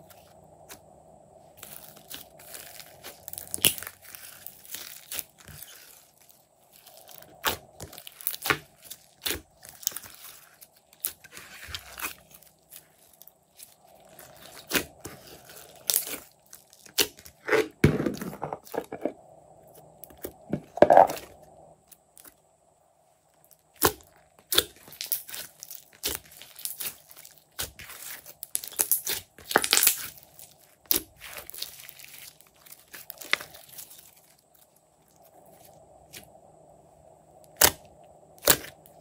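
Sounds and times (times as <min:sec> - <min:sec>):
slime squishing and popping: 0:06.8 - 0:10.4, 0:23.8 - 0:34.0, 0:38.4 - 0:38.8.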